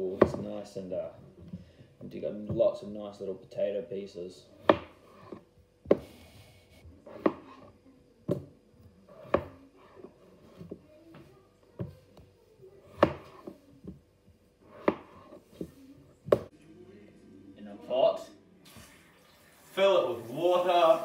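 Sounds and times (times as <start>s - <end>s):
knife chopping on plastic board: 0.0s - 0.5s, 4.6s - 6.1s, 7.0s - 7.6s, 8.3s - 10.8s, 12.8s - 14.0s, 14.7s - 15.7s.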